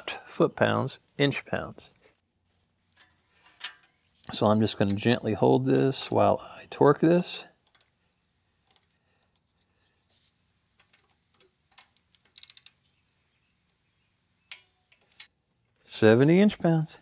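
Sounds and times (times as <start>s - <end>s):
ratchet wrench clicks: 12.2s - 12.8s.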